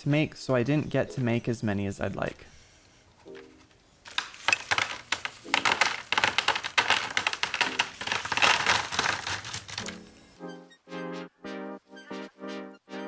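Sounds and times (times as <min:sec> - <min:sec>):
paper bundles pattering on table: 0:04.1 - 0:10.1.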